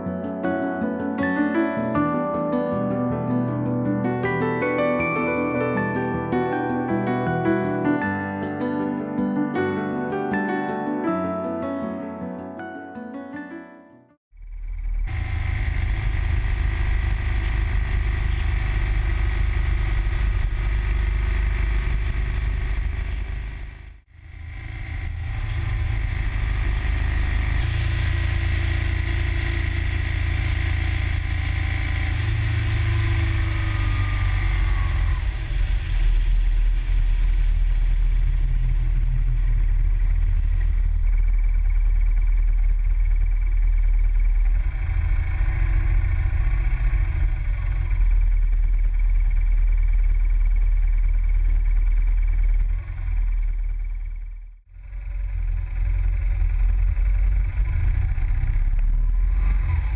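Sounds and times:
motorcycle engine running: 0:14.3 - 0:59.9
road noise: 0:14.5 - 0:59.9.

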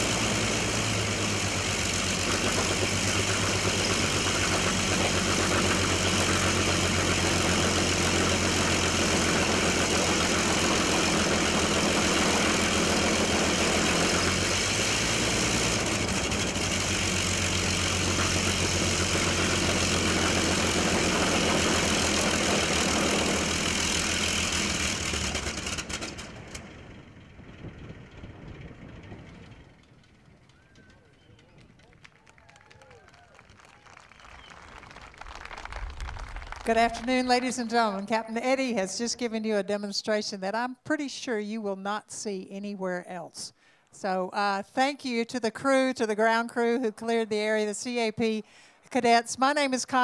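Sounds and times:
propeller aircraft engine idling: 0:00.0 - 0:40.3.

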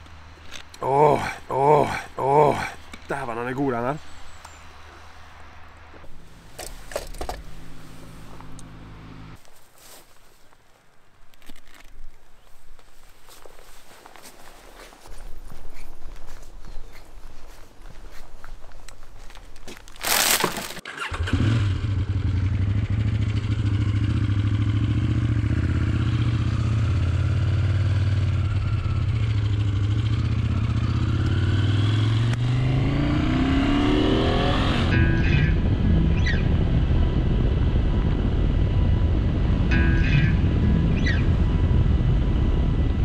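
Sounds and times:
motorcycle engine starting and revving: 0:06.0 - 0:09.4, 0:20.7 - 0:43.0.

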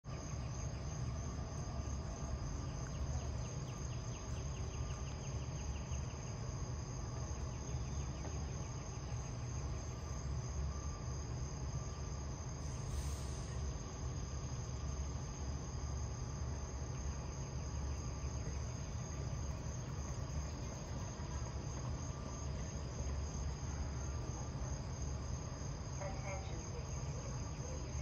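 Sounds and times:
fast pulsing insect chirp: 0:00.1 - 0:28.0
insects trilling in chorus: 0:00.1 - 0:28.0
low steady rumble: 0:00.1 - 0:28.0
brief hiss: 0:12.6 - 0:13.8.

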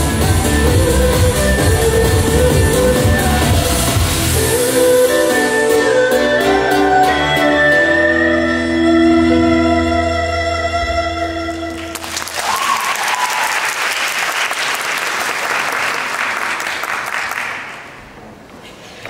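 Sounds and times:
pop backing track: 0:00.0 - 0:11.7
audience applauding: 0:11.8 - 0:18.0.

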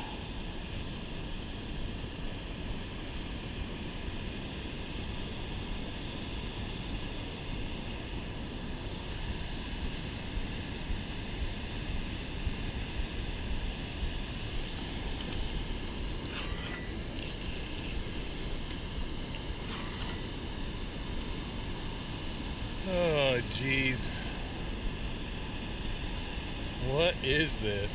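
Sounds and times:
fishing reel whirring: 0:16.3 - 0:18.8.

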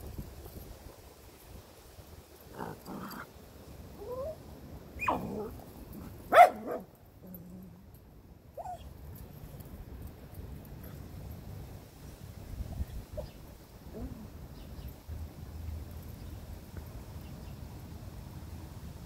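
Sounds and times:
dogs whining and yipping: 0:04.0 - 0:04.4, 0:05.0 - 0:07.6, 0:08.6 - 0:09.0
dog barking sharply: 0:06.3 - 0:06.9.

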